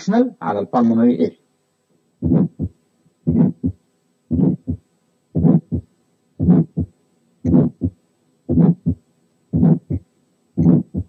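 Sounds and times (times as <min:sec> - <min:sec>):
heartbeat with murmur: 0:02.2 - 0:04.8, 0:05.4 - 0:10.0, 0:10.6 - 0:11.0.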